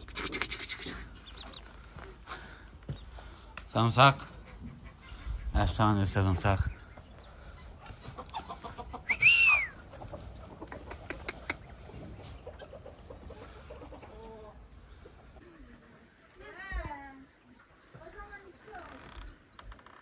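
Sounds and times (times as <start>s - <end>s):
poultry calling: 0.0s - 15.4s
cricket chirping: 0.0s - 20.0s
sharp clicks: 10.7s - 11.7s.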